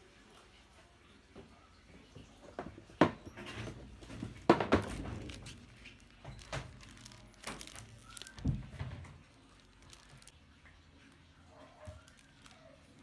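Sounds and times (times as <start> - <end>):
paper crinkling and rustling: 3.5 - 13.0.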